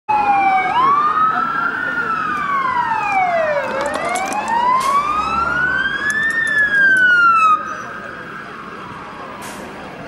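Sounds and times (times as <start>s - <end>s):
emergency sirens wailing: 0.1s - 10.0s.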